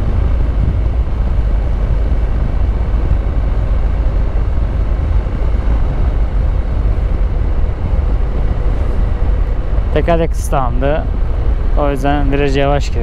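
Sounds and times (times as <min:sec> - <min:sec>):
motorcycle engine running: 0:00.0 - 0:10.0
wind on microphone: 0:00.0 - 0:13.0.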